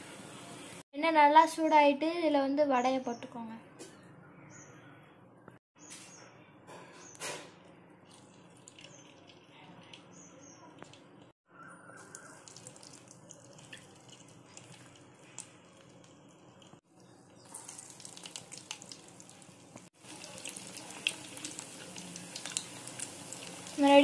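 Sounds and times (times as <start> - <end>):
food deep-frying in oil: 8.0 - 24.0.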